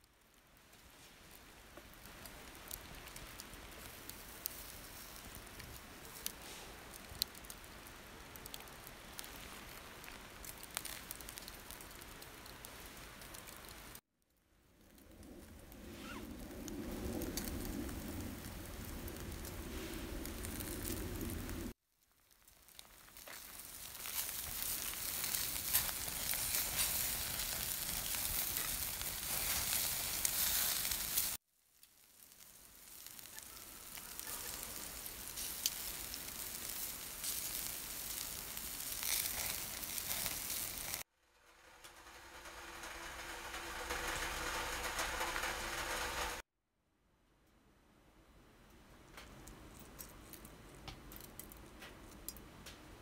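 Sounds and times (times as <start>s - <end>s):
pork sizzling on a grill: 1.5s - 14.0s, 16.8s - 46.4s
fat crackling: 22.3s - 46.4s.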